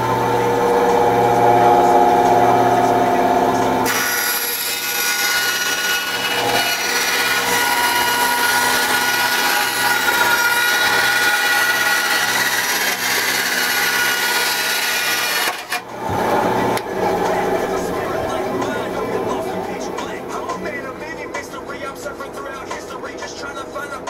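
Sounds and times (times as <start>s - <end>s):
bandsaw cutting plastic: 3.8s - 15.9s.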